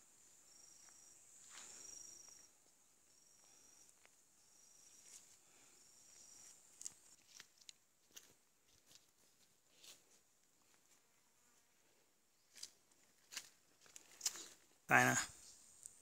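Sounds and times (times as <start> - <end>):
high insect chirp: 0.0 - 7.2
insect buzz: 0.0 - 7.2.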